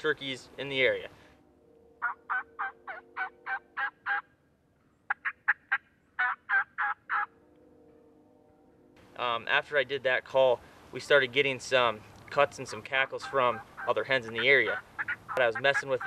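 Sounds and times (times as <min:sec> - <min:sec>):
turkey call yelps: 0:02.0 - 0:04.3, 0:05.1 - 0:07.3, 0:12.7 - 0:16.0
quick sharp turkey call notes: 0:12.7 - 0:16.0.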